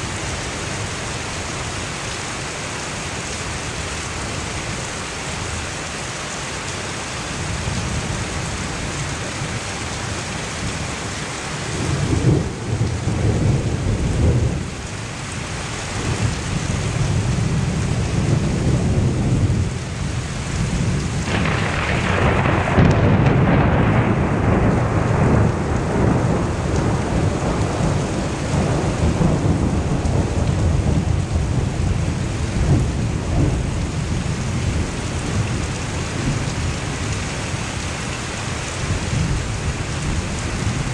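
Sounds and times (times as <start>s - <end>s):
heavy rain hissing: 0.0s - 40.9s
thunder rumbling: 11.6s - 15.3s, 16.0s - 38.0s.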